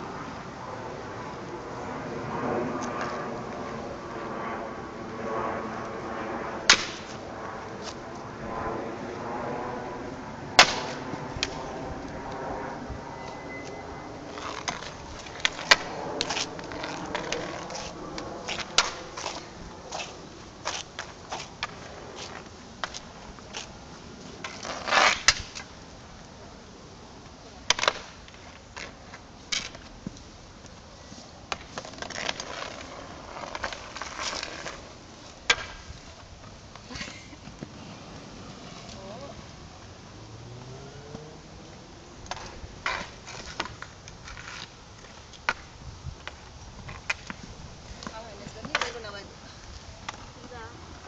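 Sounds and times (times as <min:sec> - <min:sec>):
hockey sticks clacking: 0:06.7 - 0:07.1, 0:13.7 - 0:23.7, 0:24.4 - 0:25.7, 0:31.5 - 0:35.9, 0:42.2 - 0:47.4, 0:48.0 - 0:49.2
hockey sticks clacking on ball: 0:48.0 - 0:49.1.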